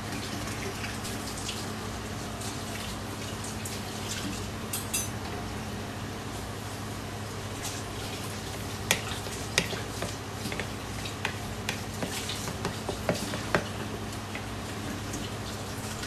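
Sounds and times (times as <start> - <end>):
steady low hum: 0.0 - 16.0
utensil tapping a bowl: 8.9 - 13.8.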